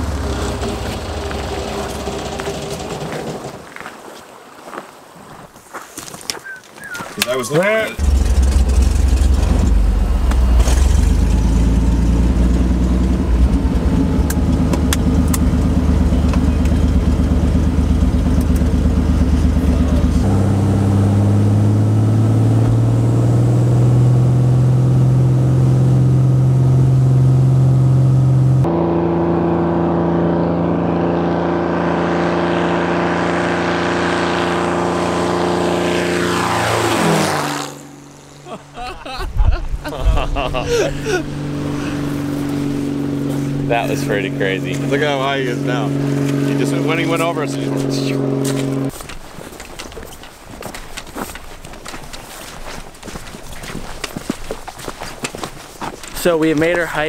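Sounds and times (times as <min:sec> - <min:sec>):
propeller plane engine droning: 0:00.0 - 0:03.7, 0:08.0 - 0:49.2.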